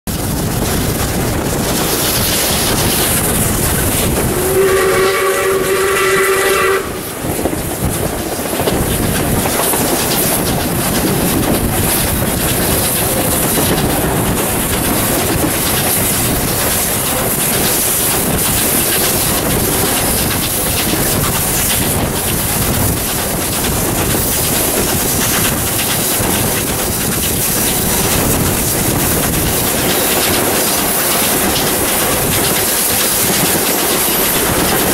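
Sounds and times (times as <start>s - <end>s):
train wheels clattering over rail joints: 0.1s - 34.9s
steam whistle blast: 4.3s - 7.2s.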